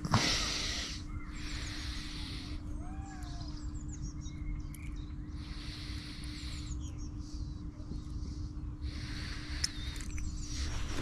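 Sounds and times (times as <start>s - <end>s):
birds calling: 0.0s - 11.0s.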